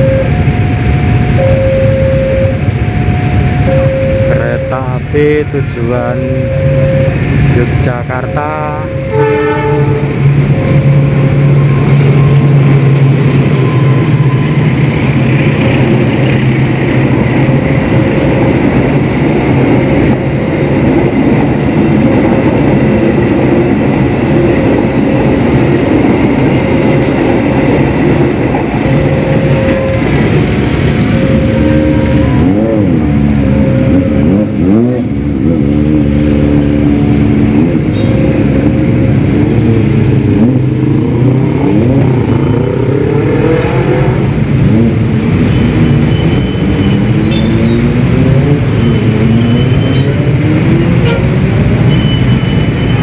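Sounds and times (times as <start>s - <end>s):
crossing alarm repeating tone: 0.0s - 43.6s, 44.2s - 53.0s
motorbike engines revving: 0.0s - 53.0s
train carriages rumbling past: 0.0s - 53.0s.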